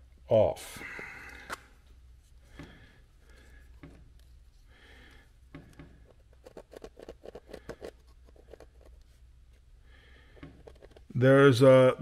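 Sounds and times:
pencil scratching on plastic: 5.7 - 9.6, 10.3 - 11.1.

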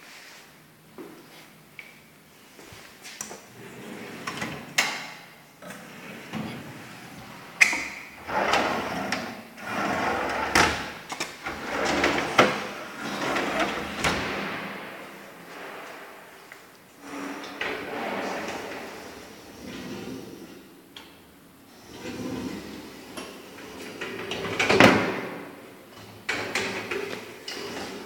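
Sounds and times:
drawers sliding on runners: 5.6 - 20.6.

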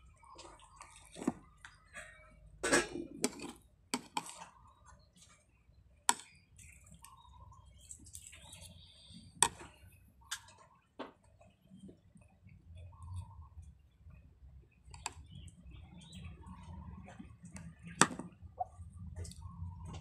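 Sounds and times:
soft eating sounds: 0.0 - 20.0
metal spoon scraping a plate: 1.9 - 3.6.

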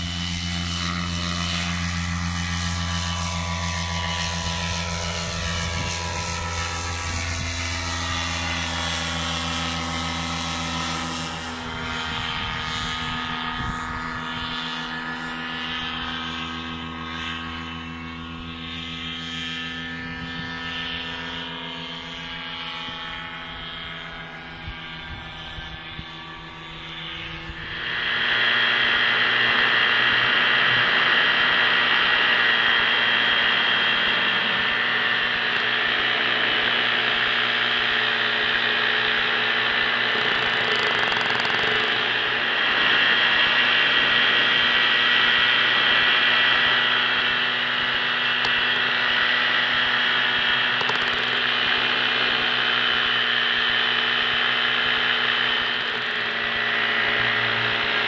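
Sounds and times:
paramotor engine droning: 0.0 - 58.0
wind rush on microphone: 4.1 - 8.4, 11.3 - 16.4, 22.9 - 37.2.

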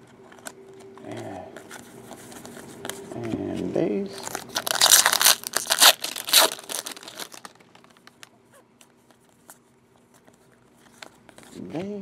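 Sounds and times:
foil pack tearing and crinkling: 4.2 - 8.3.

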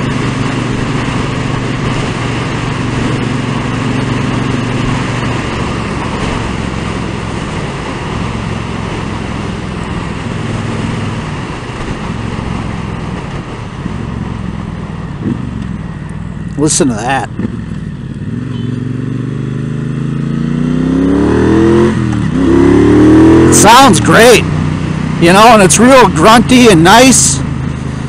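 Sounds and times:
wind rush: 0.0 - 15.6
motorcycle engine running: 0.0 - 28.0.

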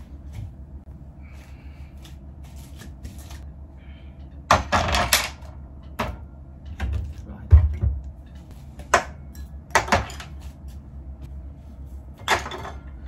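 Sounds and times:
tableware clattering: 12.2 - 12.9.

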